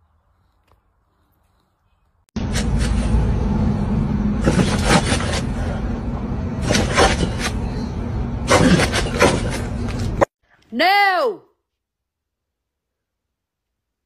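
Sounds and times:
steady low rumble: 2.4 - 10.3.

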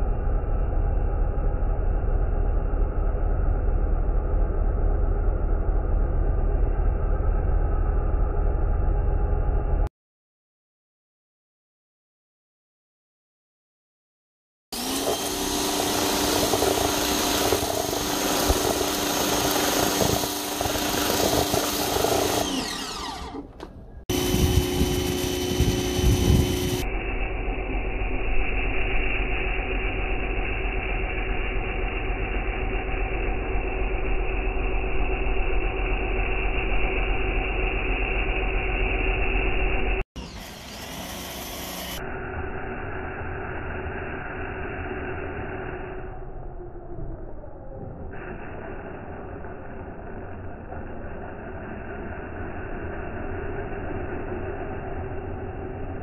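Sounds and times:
pressure washer motor hum: 14.8 - 42.6.

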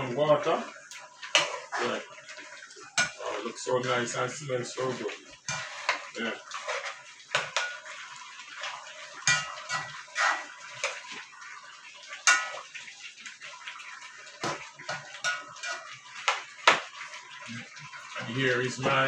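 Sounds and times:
spoon scraping a pan: 0.9 - 3.6, 5.0 - 11.3, 12.1 - 12.8, 14.4 - 17.2.

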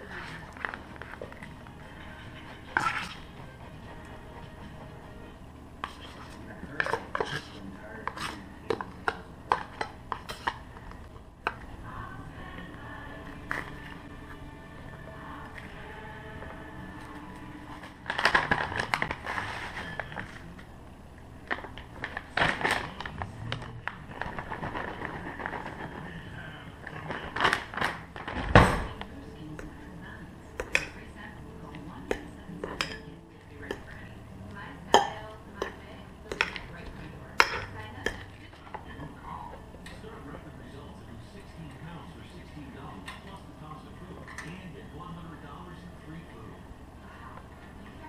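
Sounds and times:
plastic bag crinkling: 21.5 - 28.4.

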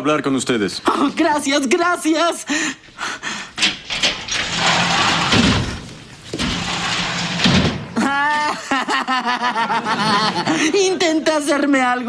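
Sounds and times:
boy chuckling mockingly: 8.0 - 10.8
audience laughing: 8.0 - 11.0.

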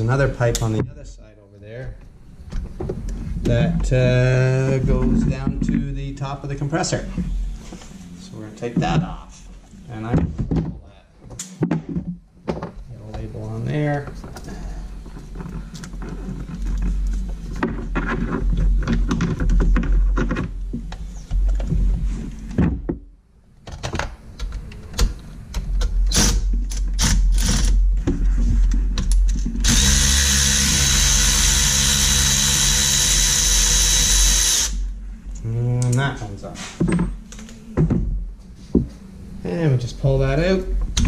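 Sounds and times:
cordless ratchet running: 29.6 - 34.8.

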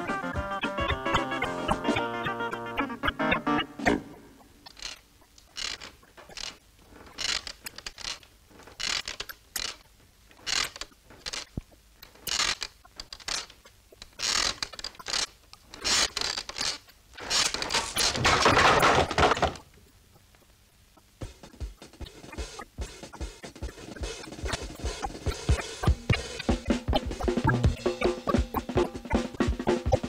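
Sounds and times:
cartoon mechanical clicks and scrapes: 3.4 - 19.6, 21.2 - 30.0
rough mechanical noise: 4.7 - 19.6.

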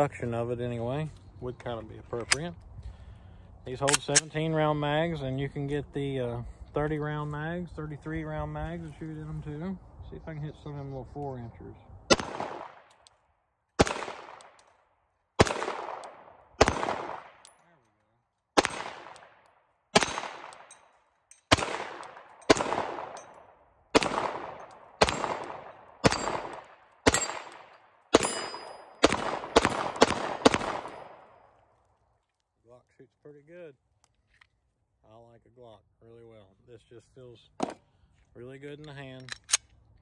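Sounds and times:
pistol shots with echo: 12.1 - 13.0, 13.8 - 14.6, 15.4 - 17.4, 18.6 - 20.8, 21.5 - 31.5.

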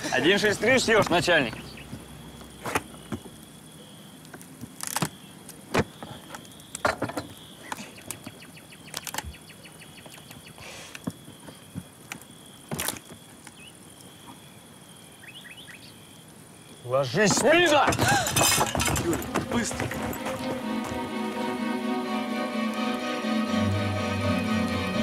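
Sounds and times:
crickets chirping: 0.0 - 23.3
objects clicking and knocking on table: 17.3 - 20.6.

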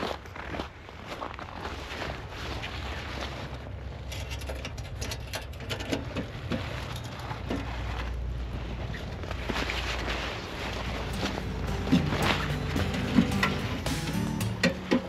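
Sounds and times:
clothing rustling: 6.4 - 13.9.

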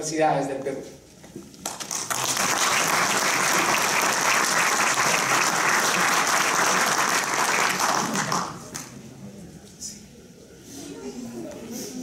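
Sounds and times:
audience applauding: 1.6 - 9.0.

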